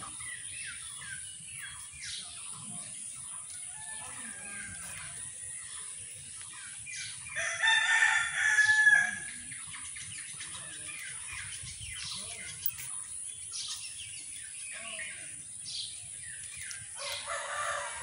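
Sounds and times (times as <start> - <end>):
rooster crowing: 7.4 - 9.3, 17.0 - 18.0.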